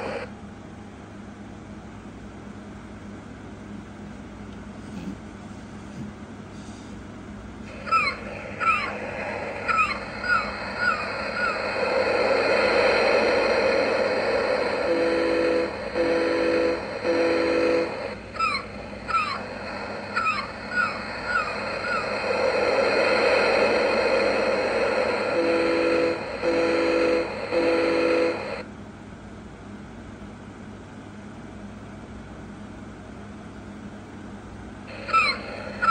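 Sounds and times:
recorded seagull cries: 0:07.7 - 0:11.8, 0:18.4 - 0:22.2, 0:34.9 - 0:35.9
foghorn blasts: 0:14.9 - 0:18.0, 0:25.3 - 0:28.4.

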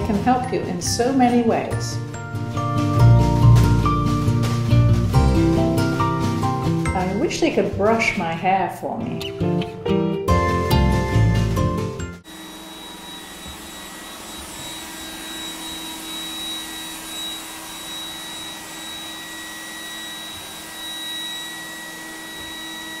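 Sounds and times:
robot vacuum whirring: 0:12.3 - 0:23.0.

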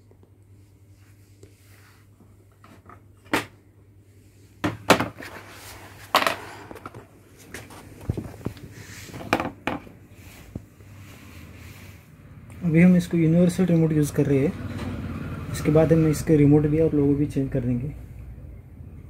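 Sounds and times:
low steady hum: 0:00.0 - 0:14.9
objects knocking on a workbench: 0:04.6 - 0:05.3, 0:06.1 - 0:07.0, 0:08.1 - 0:09.9.

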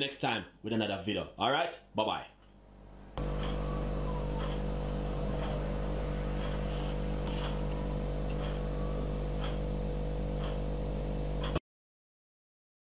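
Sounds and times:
steady low hum: 0:02.4 - 0:11.6
faint high chirps: 0:03.2 - 0:09.4.

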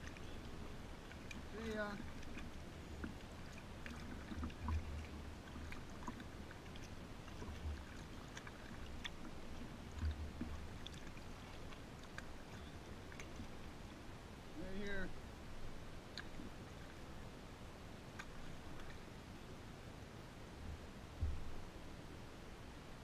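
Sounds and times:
small clicks and drips: 0:00.0 - 0:14.1, 0:15.6 - 0:17.1, 0:18.1 - 0:19.1
paddle and water sounds: 0:00.0 - 0:23.0.

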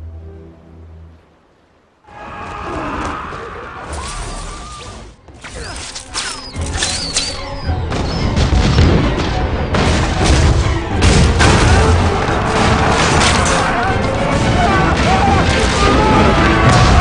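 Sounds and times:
orchestral music: 0:00.0 - 0:01.8, 0:04.0 - 0:17.0
booming rumble of explosions: 0:07.8 - 0:17.0
crashing impacts and blasts: 0:07.9 - 0:17.0.

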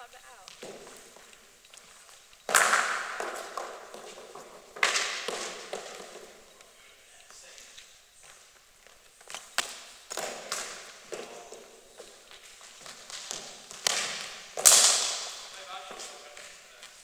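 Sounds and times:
scuffing footsteps: 0:00.3 - 0:17.0
cricket bat hitting ball: 0:02.5 - 0:06.4, 0:09.6 - 0:12.2, 0:12.8 - 0:16.4
echoing knocks and thuds: 0:02.5 - 0:06.4.

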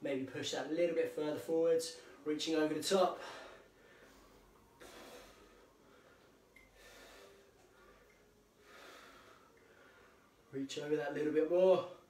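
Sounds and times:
man breathing slowly: 0:03.2 - 0:10.5.

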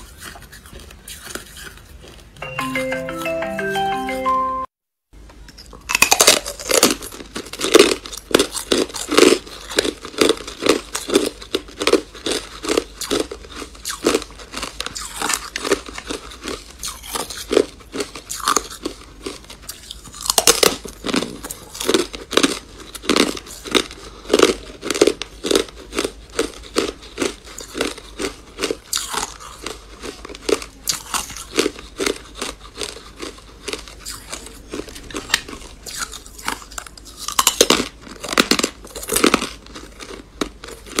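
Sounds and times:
crunching and chewing ice: 0:00.0 - 0:02.5, 0:05.5 - 0:41.0.

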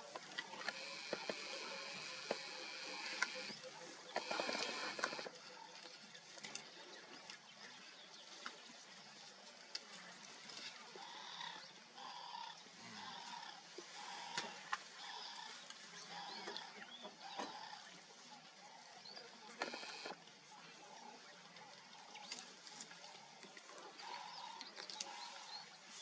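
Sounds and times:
faint clicks: 0:00.2 - 0:05.3, 0:19.6 - 0:20.2
two-pitched animal call: 0:00.6 - 0:03.5, 0:04.2 - 0:05.3.

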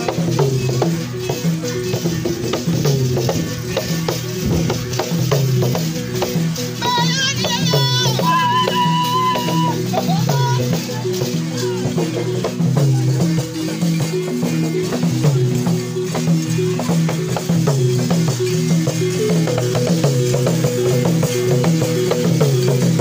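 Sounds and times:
low repeating melody: 0:00.0 - 0:08.3
rattles shaken: 0:00.0 - 0:23.0.

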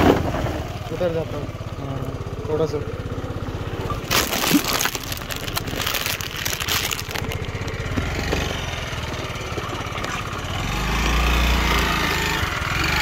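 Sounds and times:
scooter engine idling: 0:00.0 - 0:04.2, 0:04.8 - 0:11.0.

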